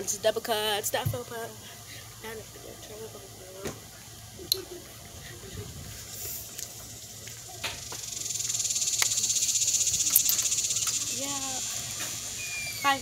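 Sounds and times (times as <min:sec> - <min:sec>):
insect trill: 0:04.6 - 0:13.0
sharp clicks: 0:10.0 - 0:11.0.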